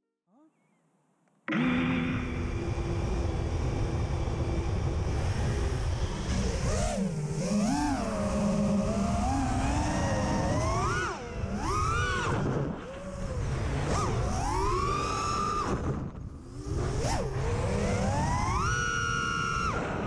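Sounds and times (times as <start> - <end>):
drone motors whining: 1.5 - 20.0.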